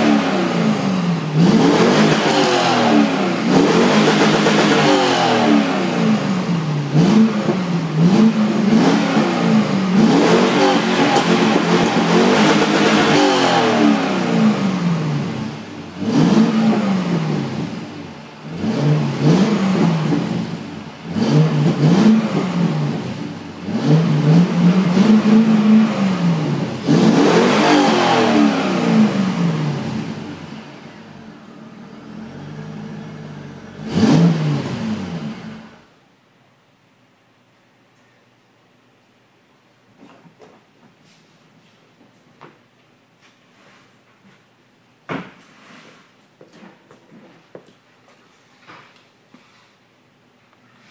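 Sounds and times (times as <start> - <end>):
car engine revving: 0.0 - 35.9
car engine idling: 28.8 - 35.9.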